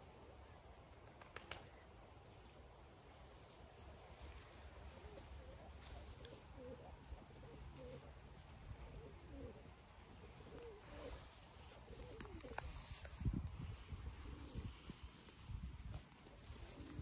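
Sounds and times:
pigeon cooing: 0:04.6 - 0:15.0, 0:16.3 - 0:17.0.

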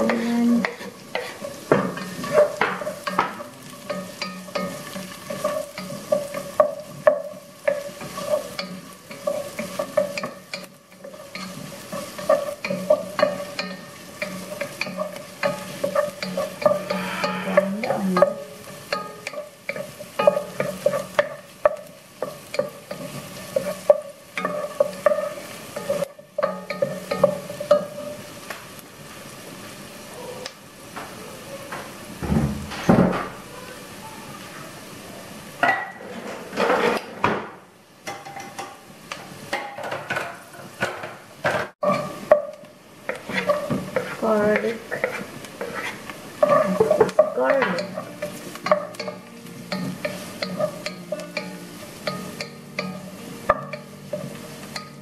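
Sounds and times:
wooden spatula scraping pan: 0:00.0 - 0:28.2, 0:41.8 - 0:51.7
onion sizzling in butter: 0:00.0 - 0:55.0.

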